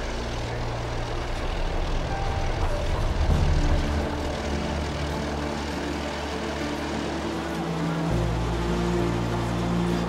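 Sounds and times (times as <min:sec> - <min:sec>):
locomotive engine drone: 0:00.0 - 0:10.0
train running noise: 0:00.0 - 0:10.0.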